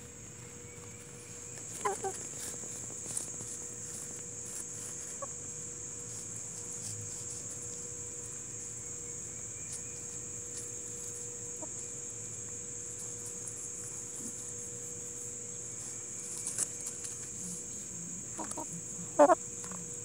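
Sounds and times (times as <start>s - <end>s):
insects chorus: 0.0s - 20.0s
hens clucking: 1.7s - 2.4s, 18.4s - 19.4s.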